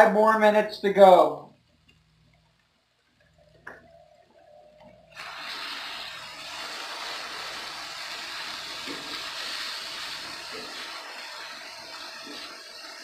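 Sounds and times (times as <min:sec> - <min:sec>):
steady bright hiss: 0:03.6 - 0:13.0.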